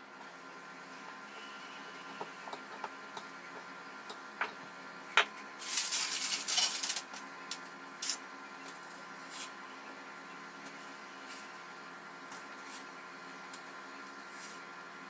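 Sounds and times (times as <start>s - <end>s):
dough being rolled out: 5.6s - 7.2s, 10.6s - 14.9s.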